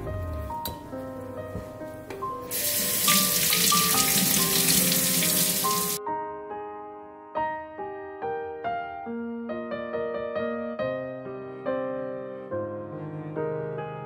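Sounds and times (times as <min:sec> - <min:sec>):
piano music: 0:00.0 - 0:14.0
kitchen tap running: 0:02.5 - 0:06.0.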